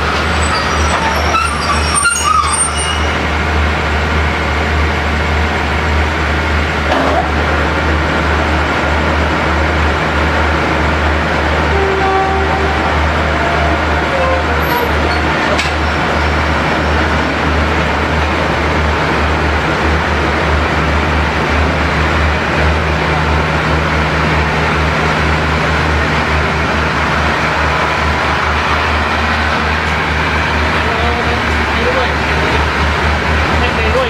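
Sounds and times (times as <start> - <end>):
train carriages rolling: 0.0 - 4.2, 6.9 - 20.2, 22.3 - 34.0
diesel train humming: 0.0 - 34.0.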